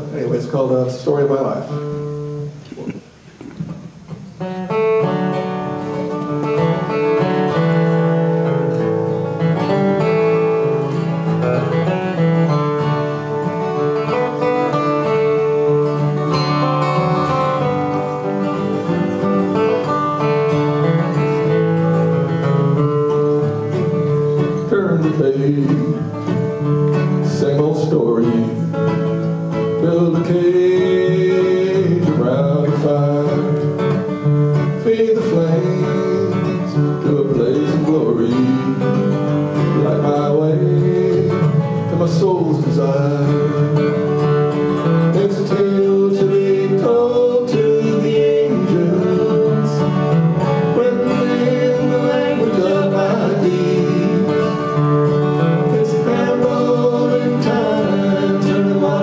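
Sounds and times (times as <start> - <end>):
acoustic guitars playing: 0.0 - 59.0
man singing: 24.5 - 28.8, 29.5 - 59.0.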